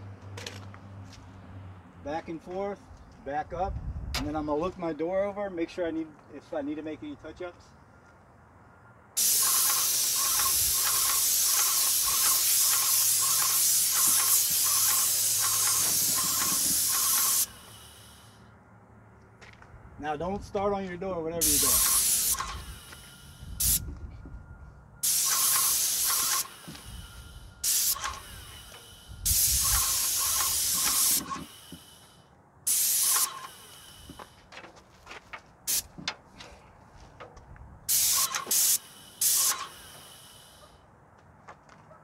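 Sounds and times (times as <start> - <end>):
paint sprayer hissing: 9.2 - 18.4, 21.4 - 23.8, 25.0 - 34.4, 35.7 - 35.9, 37.9 - 40.7.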